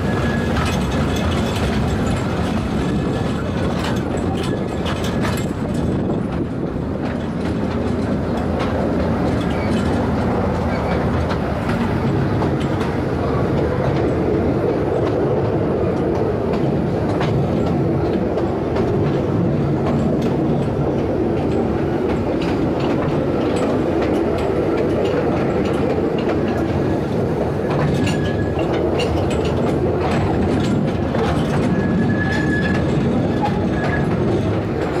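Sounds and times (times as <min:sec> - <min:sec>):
high wheel squeals: 0:00.0 - 0:01.6, 0:31.6 - 0:34.3
train rumbling: 0:00.0 - 0:35.0
wheels clicking over rails: 0:00.0 - 0:35.0.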